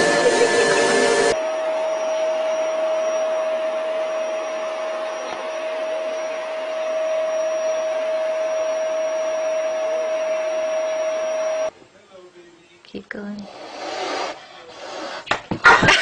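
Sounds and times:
electric appliance motor whining: 0.0 - 11.7.

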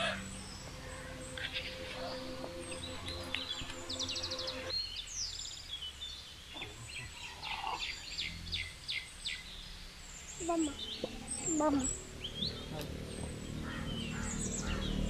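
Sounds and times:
birds chirping and calling: 6.5 - 15.0.

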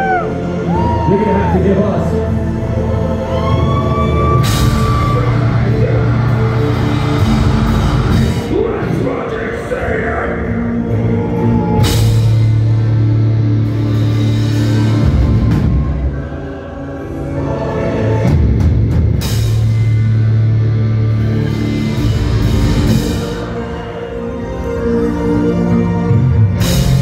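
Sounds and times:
heavy metal band playing live: 3.3 - 16.7, 18.2 - 24.0, 26.3 - 27.0.

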